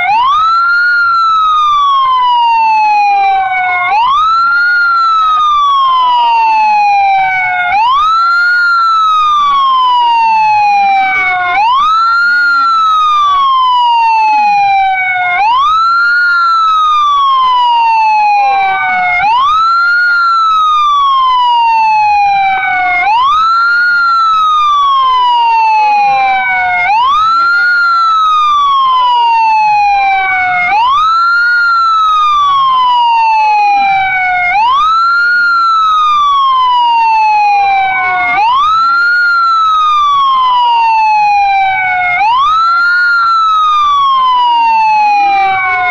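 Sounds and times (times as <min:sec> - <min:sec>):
faint second siren: 0:00.0 - 0:45.9
siren wailing: 0:00.0 - 0:45.9.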